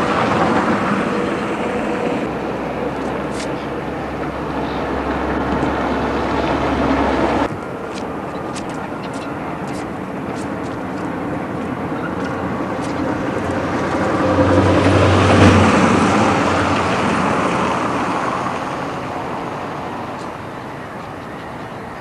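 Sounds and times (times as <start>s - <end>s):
vehicle passing by: 9.8s - 20.4s.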